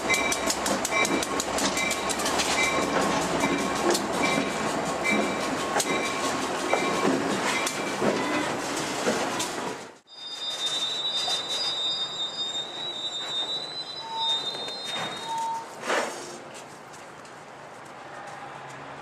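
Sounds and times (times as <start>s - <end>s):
wheels clicking over rail joints: 0.0s - 10.0s
freight train passing: 0.0s - 19.0s
bell ringing: 10.1s - 15.6s.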